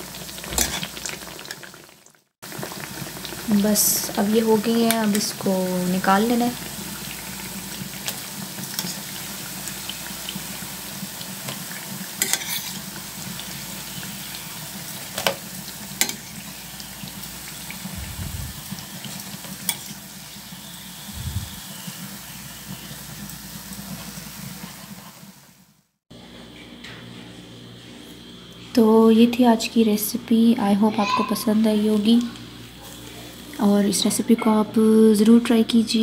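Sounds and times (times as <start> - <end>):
hot oil sizzling in a frying pan: 0.0 - 25.8
short low thumps: 17.9 - 18.6.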